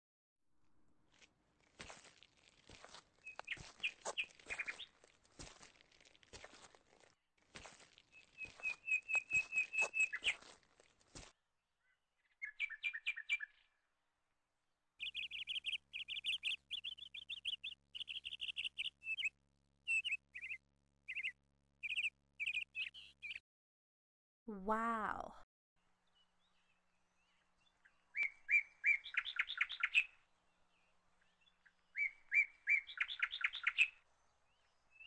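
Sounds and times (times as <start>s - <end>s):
rustling and stepping through brush: 1.1s - 11.3s
small birds chirping: 1.1s - 13.8s, 15.0s - 23.4s, 26.0s - 35.0s.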